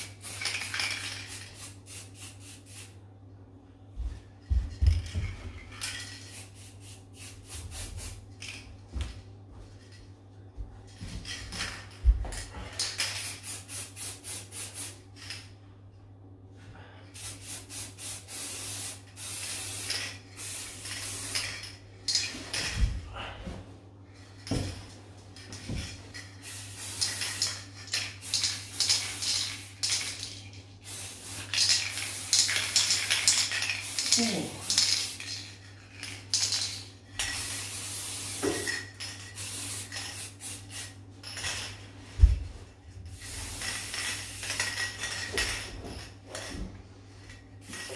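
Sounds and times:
spray paint can hissing: 0:00.0 - 0:03.0, 0:06.2 - 0:08.2, 0:13.0 - 0:15.0, 0:17.2 - 0:21.6, 0:26.4 - 0:35.4, 0:36.3 - 0:41.6, 0:43.2 - 0:45.1.

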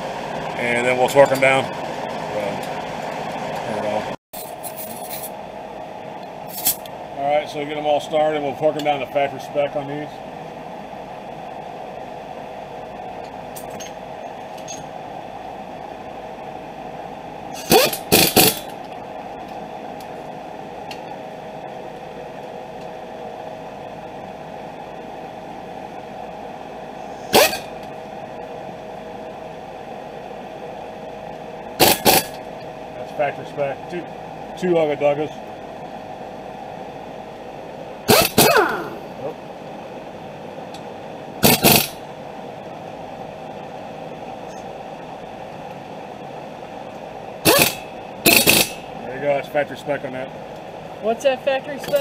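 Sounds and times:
steady background hum: 0:00.0 - 0:52.0
impact wrench burst: 0:17.5 - 0:18.7, 0:27.3 - 0:27.7, 0:31.8 - 0:32.4, 0:38.1 - 0:39.1, 0:41.4 - 0:42.0, 0:47.4 - 0:48.8.

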